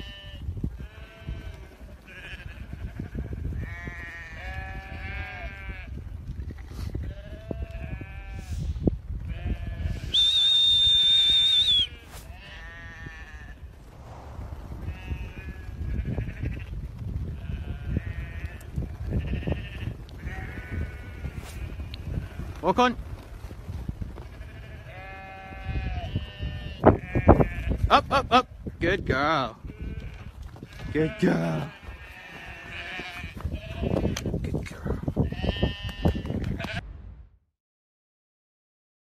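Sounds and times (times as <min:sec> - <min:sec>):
sheep bleating: 0:00.0 - 0:06.0, 0:07.0 - 0:08.5, 0:11.6 - 0:13.6, 0:14.9 - 0:16.7, 0:17.4 - 0:22.5, 0:24.3 - 0:28.4, 0:29.6 - 0:34.3, 0:35.2 - 0:36.8
high shepherd's whistle: 0:10.0 - 0:12.2.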